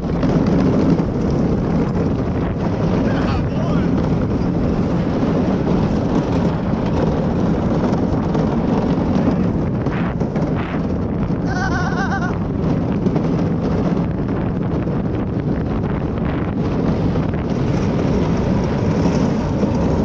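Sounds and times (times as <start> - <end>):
cart rolling rumble: 0.0 - 20.0
wind buffeting microphone: 0.0 - 20.0
warbling cry: 11.4 - 12.4.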